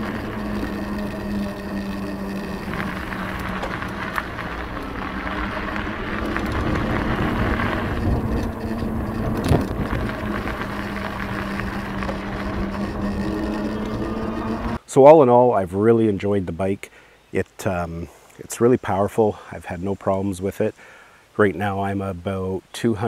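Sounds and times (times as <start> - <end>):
steady low hum: 0.0 - 14.8
wind rushing over microphone: 0.0 - 14.8.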